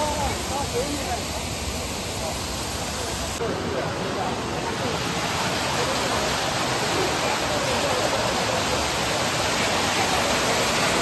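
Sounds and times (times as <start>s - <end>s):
water pouring onto a water wheel: 4.1s - 11.0s.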